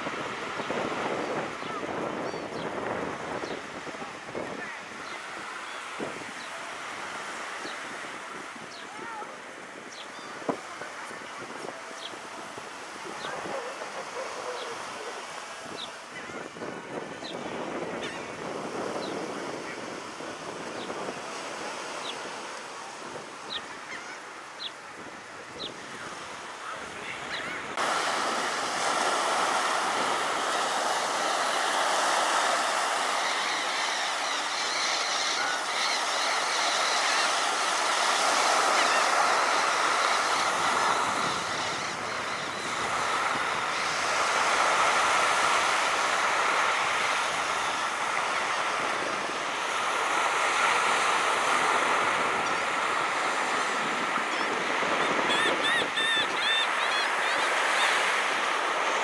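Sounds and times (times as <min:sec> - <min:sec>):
surf washing onto beach: 0:00.0 - 0:59.0
short bird calls: 0:55.2 - 0:58.0.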